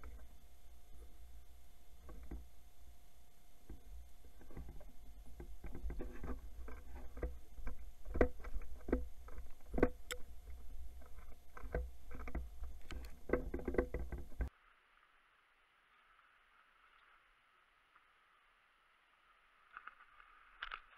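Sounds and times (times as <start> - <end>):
gear clicking and knocking: 3.7 - 14.5.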